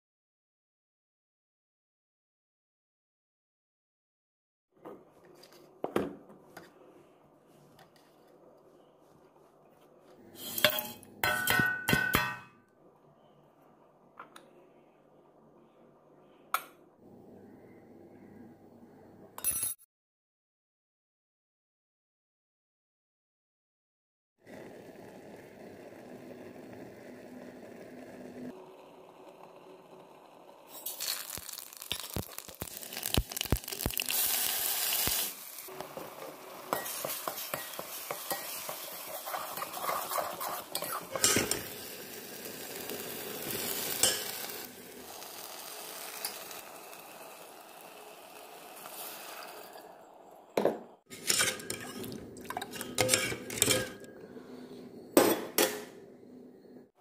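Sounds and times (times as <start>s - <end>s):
metal ladle clinking and scraping: 10.4s - 12.4s, 36.7s - 41.7s, 51.1s - 54.1s
paste sizzling in a pan: 24.5s - 49.9s.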